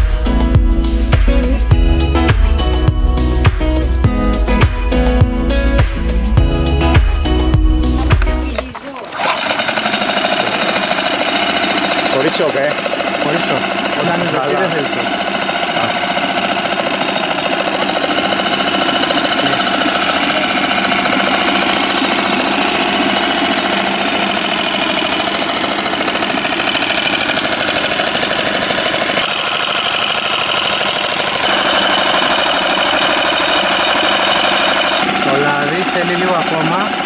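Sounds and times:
outboard motor running: 0:00.0 - 0:37.0
water churning: 0:08.6 - 0:14.0.

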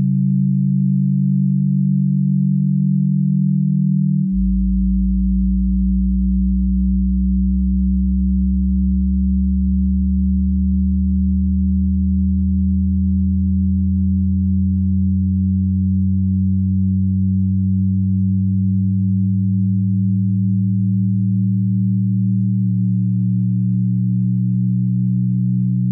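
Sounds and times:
low electronic drone: 0:00.0 - 0:25.9.

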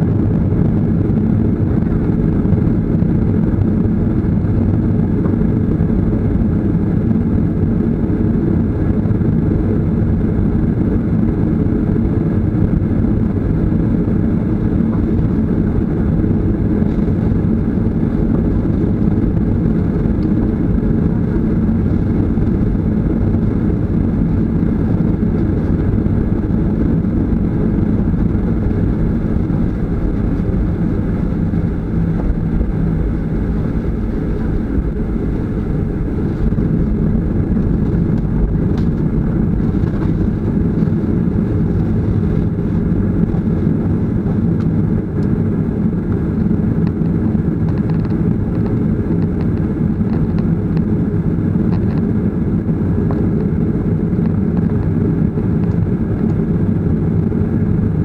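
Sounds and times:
jet engines droning: 0:00.0 - 0:58.0.

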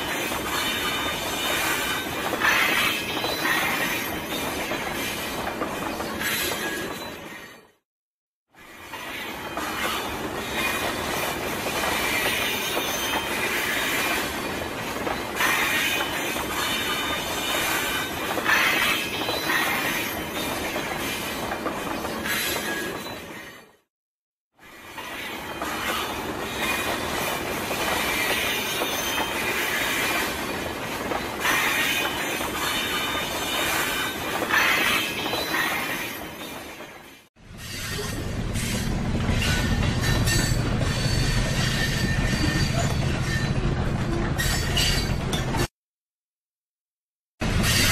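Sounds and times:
train wheels on rails: 0:00.0 - 0:07.8, 0:08.6 - 0:23.9, 0:24.6 - 0:45.7, 0:47.4 - 0:47.9.

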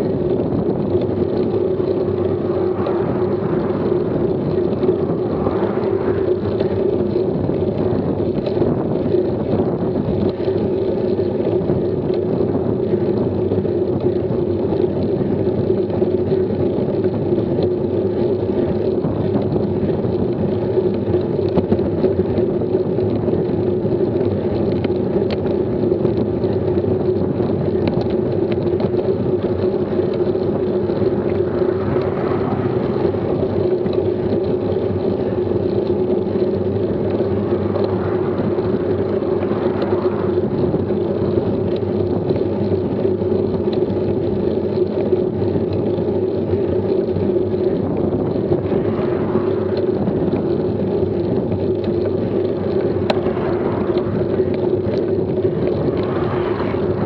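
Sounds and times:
car passing: 0:00.0 - 0:08.4, 0:29.2 - 0:42.2, 0:47.5 - 0:57.0
road noise: 0:00.0 - 0:57.0
wind noise: 0:00.0 - 0:57.0.

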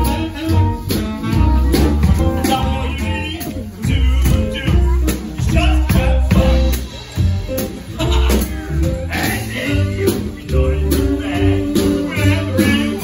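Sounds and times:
saxophone: 0:00.0 - 0:05.2
piano: 0:00.0 - 0:13.0
plucked double bass: 0:00.0 - 0:13.0.

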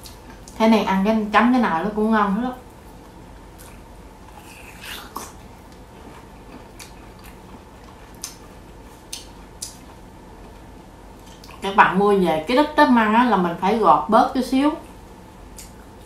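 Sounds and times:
person chewing crunchy food: 0:02.9 - 0:11.6
wet mouth clicks: 0:03.6 - 0:05.8, 0:08.2 - 0:08.4, 0:09.1 - 0:09.9, 0:15.5 - 0:15.8.

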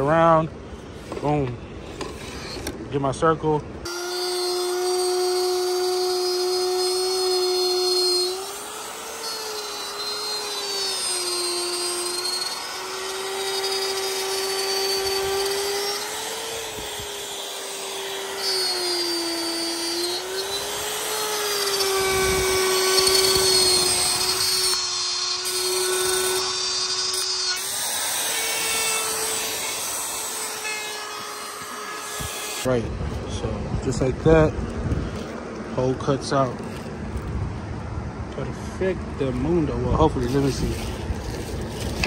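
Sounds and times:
router motor whine: 0:03.9 - 0:32.7.

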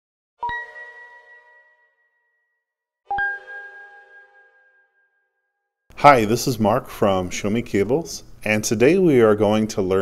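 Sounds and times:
bell-like chime: 0:00.4 - 0:05.8.

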